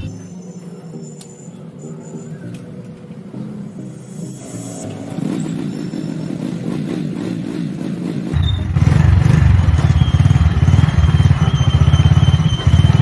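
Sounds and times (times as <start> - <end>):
motorcycle engine pulsing: 4.8 - 13.0.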